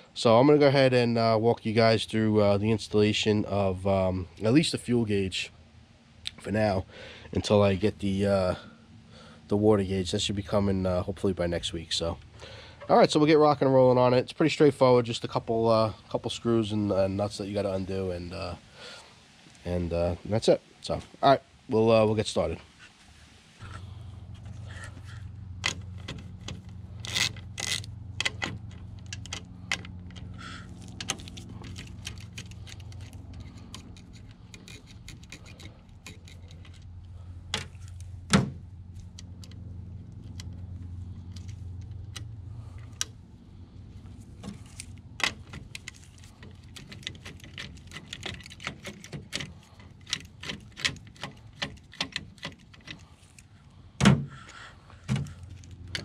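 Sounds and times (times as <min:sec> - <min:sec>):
low steady hum: 0:00.0 - 0:56.0
small metal clicks and clinks: 0:30.9 - 0:36.9.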